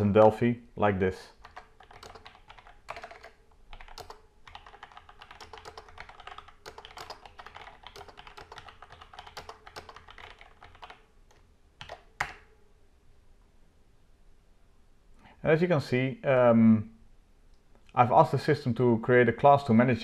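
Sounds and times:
computer keyboard typing: 0:01.3 - 0:12.5.

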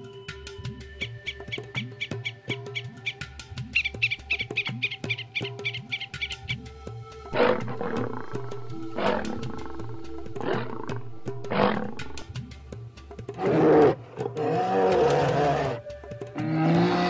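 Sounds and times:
lion roaring: 0:07.4 - 0:12.2, 0:13.4 - 0:15.8, 0:16.4 - 0:17.0.

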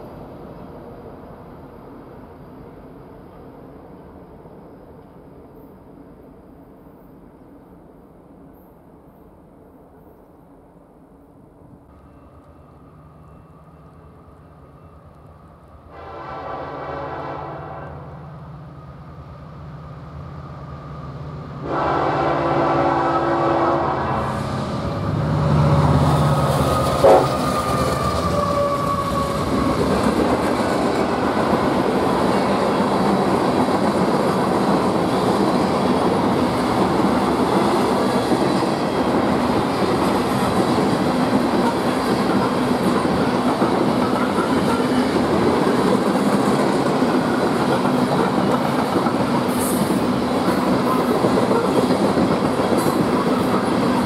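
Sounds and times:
diesel locomotives rumbling: 0:11.6 - 0:54.0
train air horn: 0:15.9 - 0:18.3, 0:21.6 - 0:24.8, 0:26.8 - 0:29.2
train cars clickety-clack: 0:24.8 - 0:54.0.

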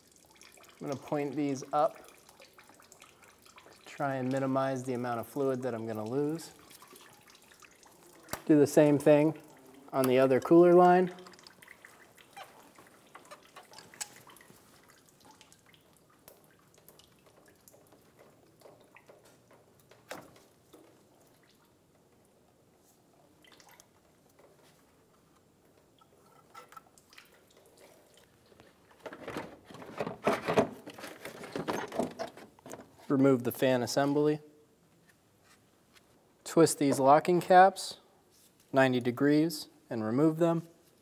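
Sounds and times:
fluid dripping: 0:00.0 - 0:29.0
plastic scraping and clattering: 0:28.9 - 0:33.1.

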